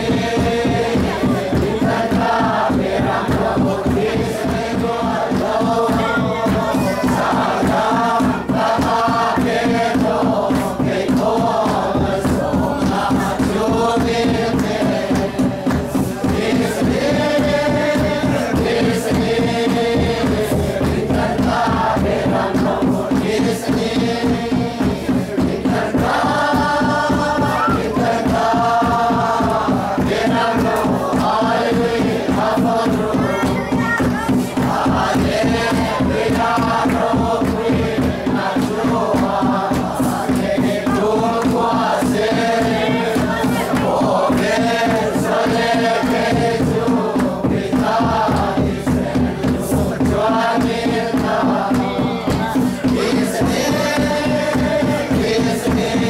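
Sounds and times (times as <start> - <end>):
barrel drum beat: 0.0 - 56.0
many voices singing together: 0.0 - 56.0.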